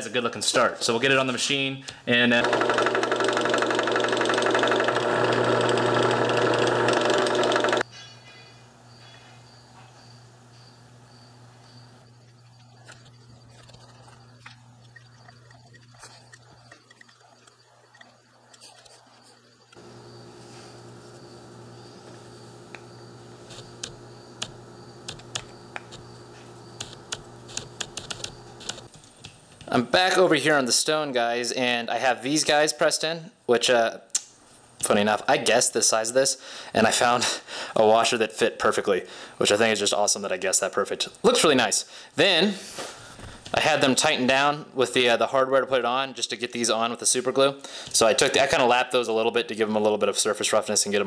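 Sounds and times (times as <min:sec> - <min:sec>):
drill press motor humming: 0:02.2 - 0:07.9, 0:19.8 - 0:28.9
drill bit chattering in metal: 0:02.3 - 0:07.9
steady background hum: 0:05.6 - 0:32.6.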